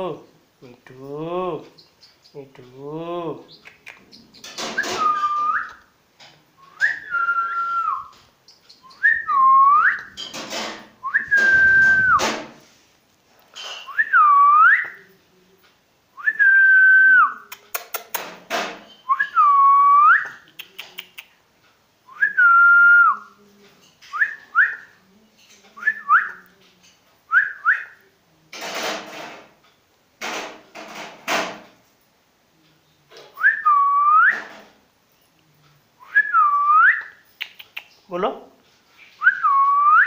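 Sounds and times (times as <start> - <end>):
short harsh noises: 10.2 - 12.8
man whistling: 11.1 - 12.2.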